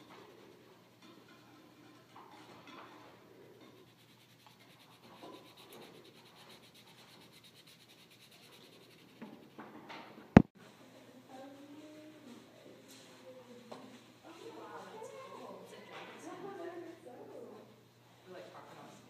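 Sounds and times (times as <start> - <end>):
faint rubbing and scratching: 0.0 - 10.2.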